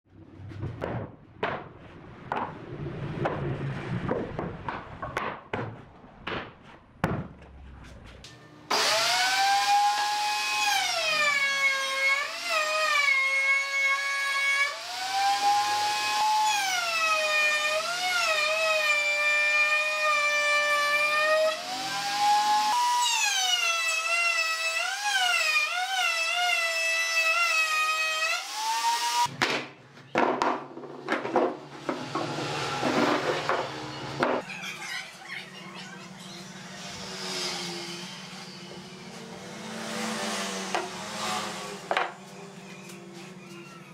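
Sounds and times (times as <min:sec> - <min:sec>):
wooden knocks and clatters: 0:00.4 - 0:01.7, 0:29.4 - 0:34.4
table saw cutting wood: 0:08.2 - 0:29.3, 0:31.4 - 0:34.6, 0:35.3 - 0:43.9.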